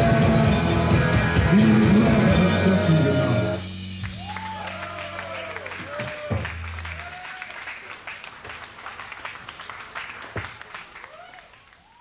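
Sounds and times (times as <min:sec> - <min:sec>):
audience clapping and cheering: 0:04.0 - 0:12.0.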